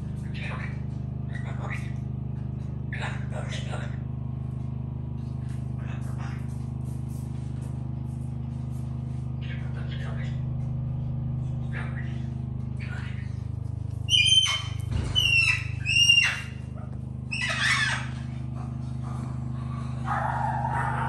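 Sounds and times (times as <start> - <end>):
steady low hum: 0.0 - 21.0
animal squawks: 14.1 - 18.4.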